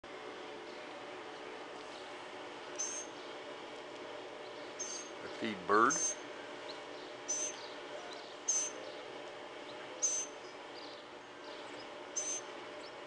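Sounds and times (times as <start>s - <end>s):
bird chirping: 2.8s - 3.4s, 4.4s - 13.0s.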